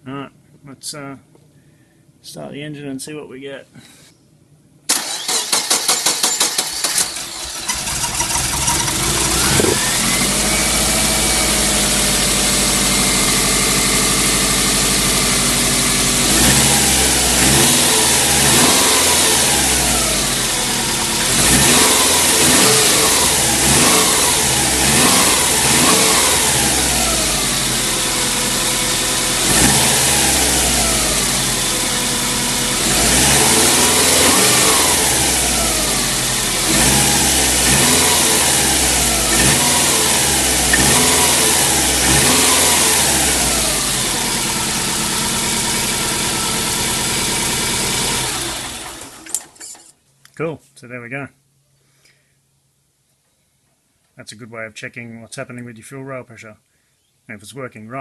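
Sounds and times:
starter cranking engine: 0:04.9 - 0:11.4
car engine idling and revving: 0:05.0 - 0:49.6.

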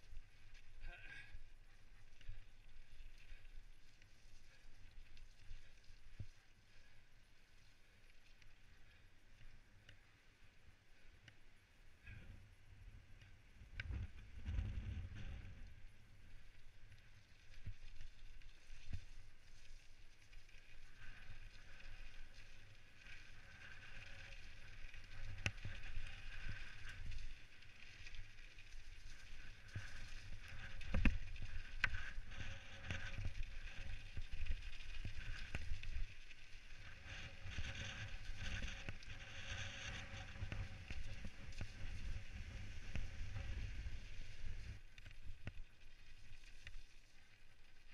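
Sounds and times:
bike tyres rolling on rough ground: 0:00.0 - 0:47.9
wind rumbling on microphone: 0:12.0 - 0:46.8.

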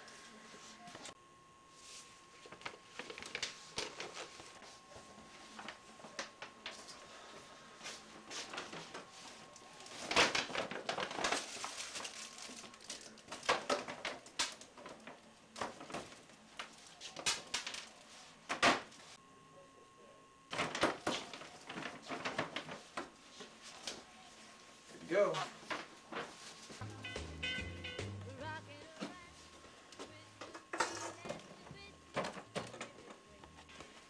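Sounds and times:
paper crinkling and rustling: 0:01.8 - 0:18.4, 0:20.5 - 0:24.6.

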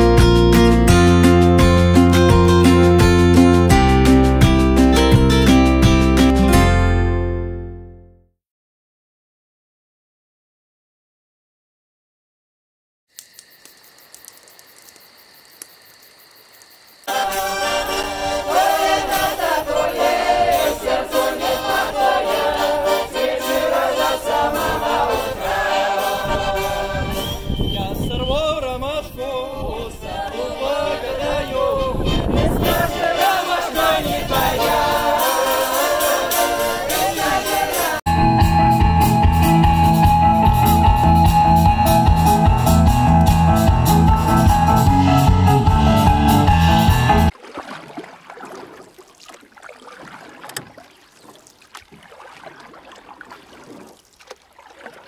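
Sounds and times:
amplified band playing: 0:00.0 - 0:07.6, 0:32.6 - 0:47.3
button accordion: 0:17.1 - 0:27.0
group singing a folk song: 0:17.1 - 0:28.4, 0:29.0 - 0:38.1, 0:43.3 - 0:47.3.

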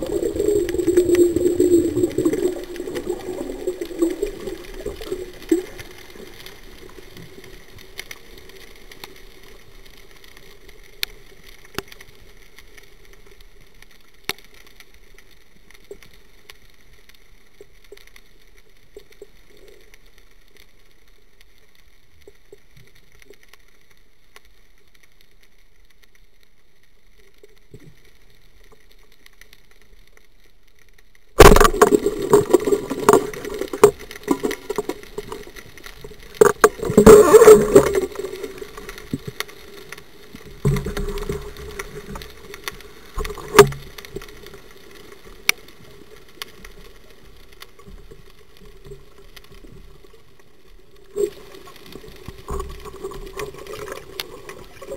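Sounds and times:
water churning underwater: 0:00.0 - 0:11.0, 0:31.4 - 0:54.9.

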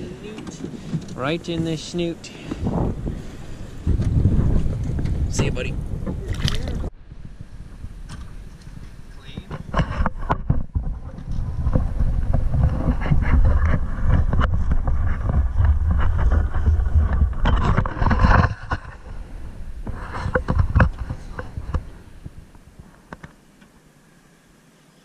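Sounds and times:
clicks and rustles: 0:08.1 - 0:19.2, 0:19.8 - 0:23.7.

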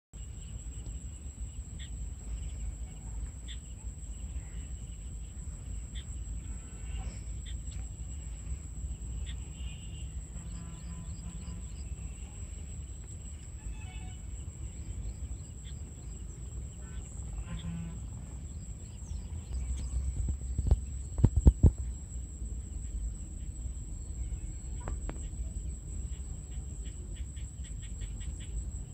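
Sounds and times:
high-pitched insect drone: 0:00.2 - 0:28.9
wind rumble on microphone: 0:14.2 - 0:28.9.

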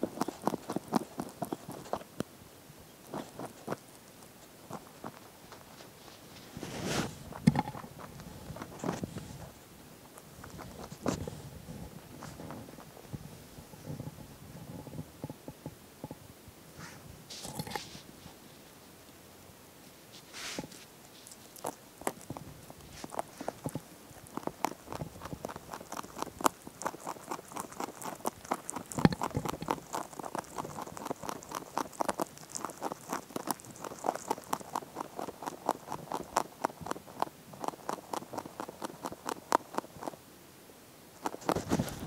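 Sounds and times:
rabbit chewing hay: 0:00.0 - 0:40.3, 0:41.1 - 0:42.0.

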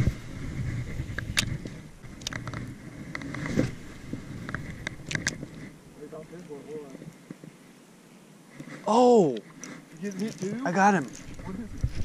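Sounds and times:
sleeve rubbing on microphone: 0:00.0 - 0:05.8.

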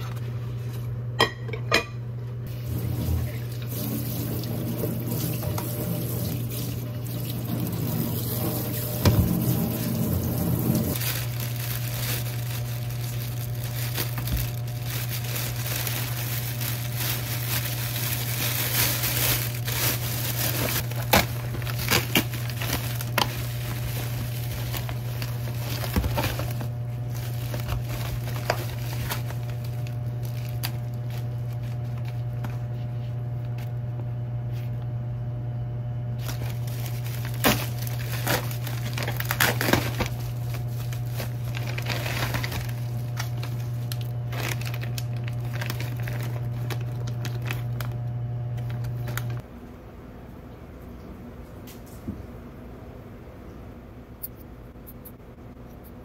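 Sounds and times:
steady low hum: 0:00.0 - 0:56.0
packaging crinkling: 0:06.4 - 0:32.7, 0:36.2 - 0:49.5.

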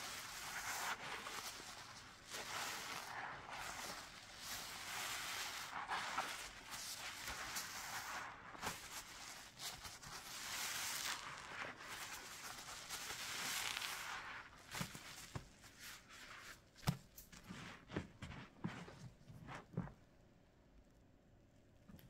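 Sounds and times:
sponge squishing with soap: 0:00.0 - 0:20.0.

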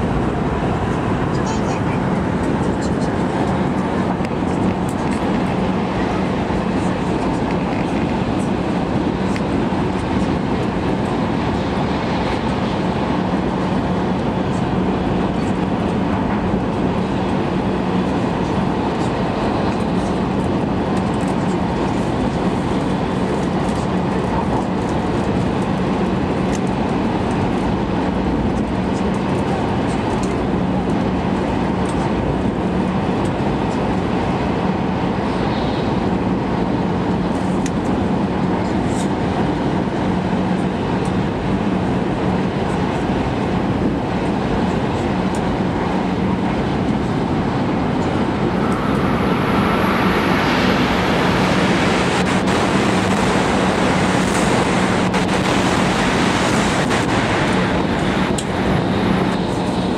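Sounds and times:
low hum: 0:43.2 - 0:59.9
train wheels and air rushing: 0:44.9 - 0:59.9.

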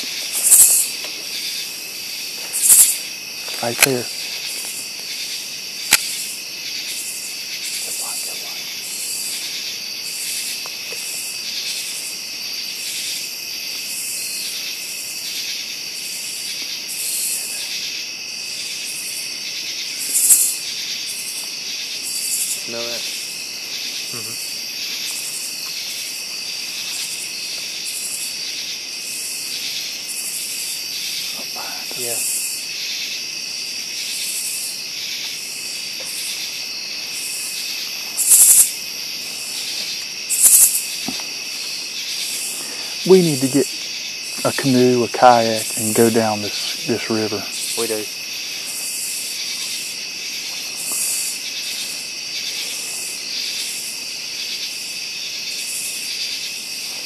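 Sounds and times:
crickets trilling: 0:00.0 - 0:57.0
pulsed insect call: 0:00.0 - 0:57.0
sharp clicks: 0:05.9 - 0:06.1.

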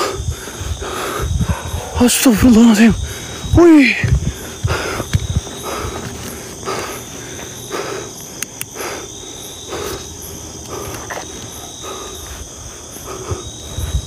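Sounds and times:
crickets and insects droning: 0:00.0 - 0:14.0
soft footsteps on grass: 0:02.3 - 0:07.7.

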